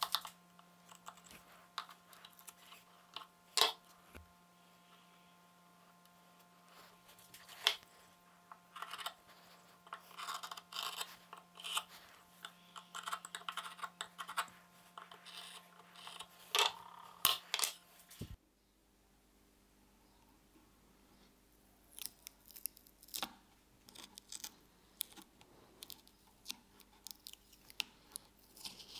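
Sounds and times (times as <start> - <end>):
fingers scratching and rubbing: 8.7 - 17.1.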